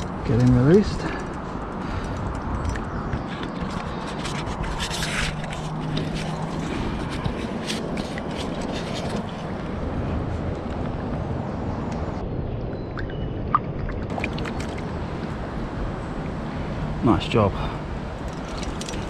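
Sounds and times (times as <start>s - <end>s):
moving water rumble: 0.0s - 19.0s
hands and clothing rustling: 2.6s - 9.8s.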